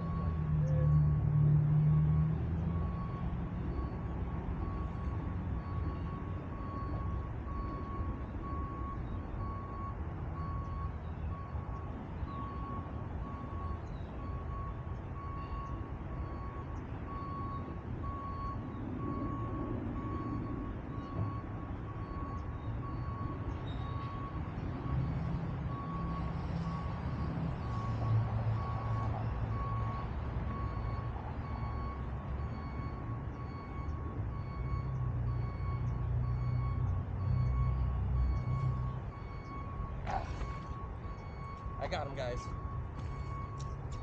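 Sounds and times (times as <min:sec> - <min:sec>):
low engine rumble: 0:00.0 - 0:44.0
reversing alarm beeping: 0:00.0 - 0:44.0.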